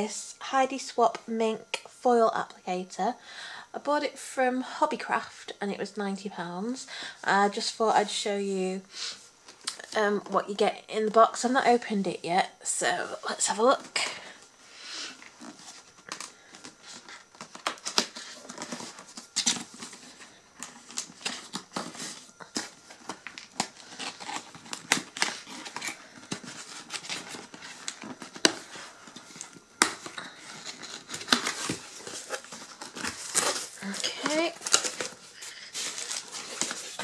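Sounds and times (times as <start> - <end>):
cardboard box being opened: 16.8 - 37.0.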